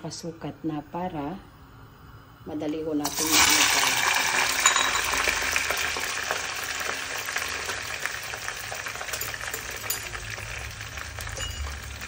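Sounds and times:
fries sizzling in hot oil: 3.0s - 12.0s.

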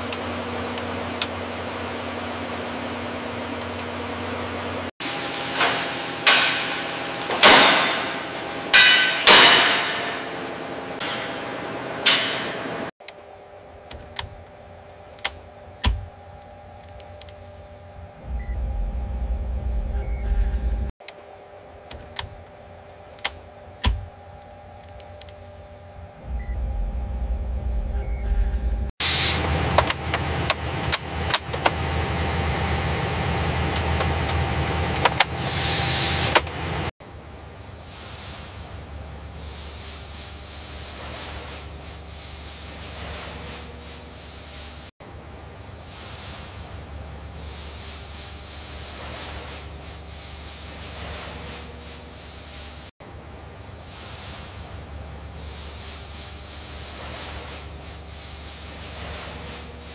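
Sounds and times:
machinery humming: 0.0s - 59.9s
heavy metal clangs ringing: 7.4s - 10.4s.

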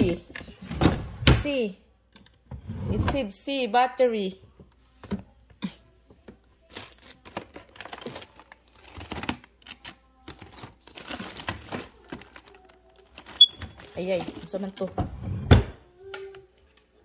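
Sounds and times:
plastic packaging crinkling: 6.6s - 14.8s.

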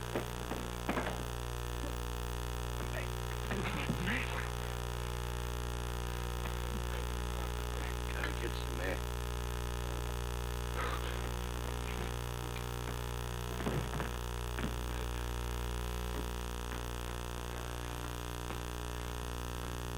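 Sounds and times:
electrical mains hum: 0.0s - 19.9s
fight scuffle sounds: 2.8s - 5.0s, 10.8s - 15.4s.

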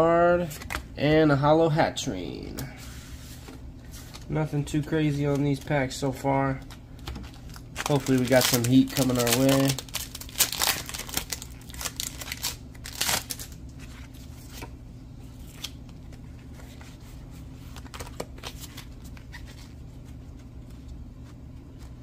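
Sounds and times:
steady low hum: 0.0s - 22.0s
cards clicking and rustling: 6.5s - 14.8s, 17.6s - 19.7s
foil wrapper crinkling and tearing: 7.3s - 13.6s.

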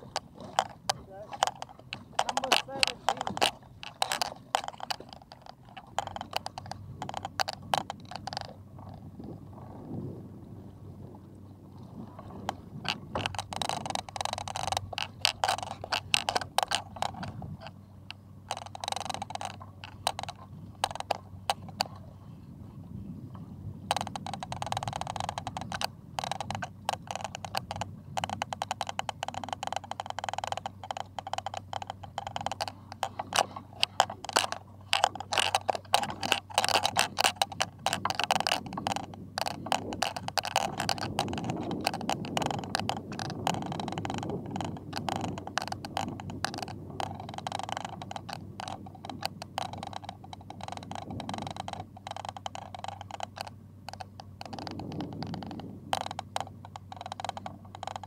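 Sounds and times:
fishing reel clicking: 0.0s - 9.1s, 12.2s - 22.4s, 23.9s - 58.0s.

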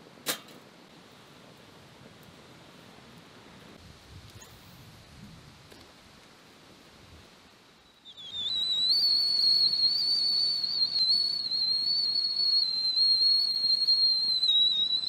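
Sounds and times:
kettle whistling: 7.8s - 15.0s.

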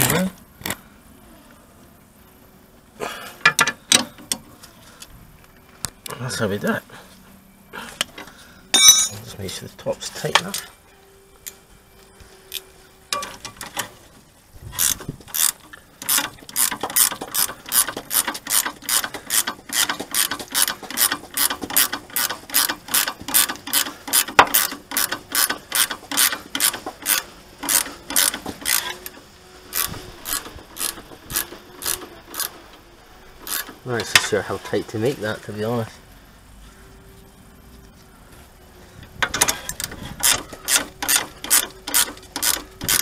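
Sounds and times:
ratchet spanner clicking: 14.8s - 32.5s, 33.4s - 34.2s, 39.2s - 43.0s.

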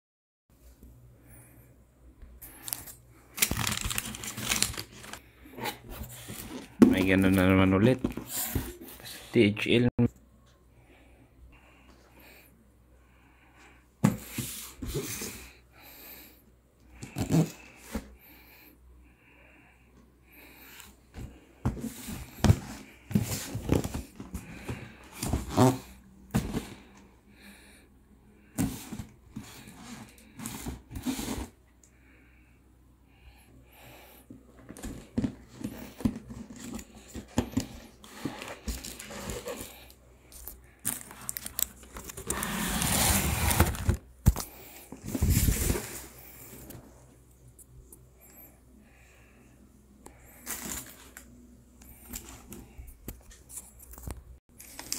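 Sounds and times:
plastic and tissue rustling: 2.6s - 9.0s.

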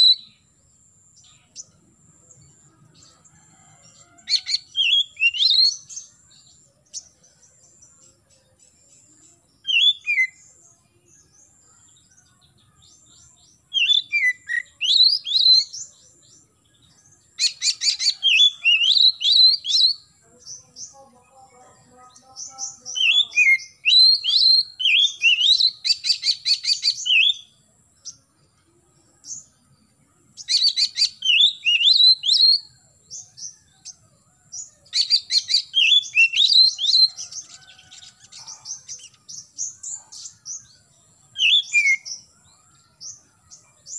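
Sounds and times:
bird singing whistled slurs: 22.9s - 27.5s, 30.4s - 34.0s, 34.9s - 40.6s, 41.3s - 42.3s.

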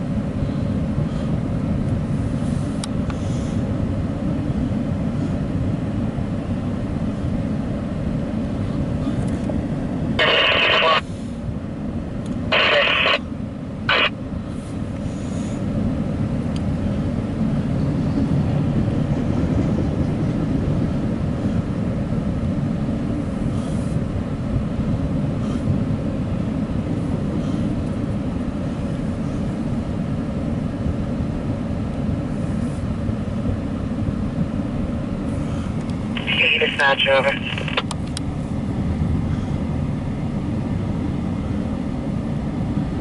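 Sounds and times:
train wheels rumbling on rails: 17.4s - 22.6s.

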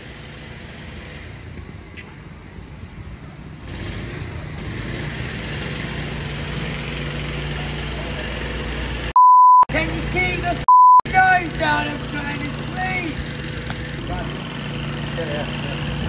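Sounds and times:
engine humming: 9.7s - 16.0s.

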